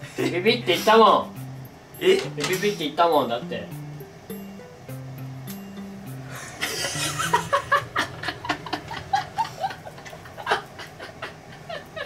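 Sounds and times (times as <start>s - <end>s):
young men laughing: 0.0s - 1.0s, 6.3s - 12.0s.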